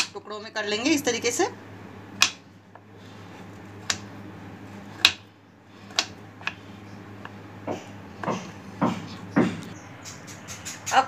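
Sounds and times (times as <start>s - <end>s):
steady low hum: 0.0s - 11.0s
knife cutting chocolate on wood: 2.2s - 2.4s, 3.2s - 4.1s, 4.7s - 9.7s.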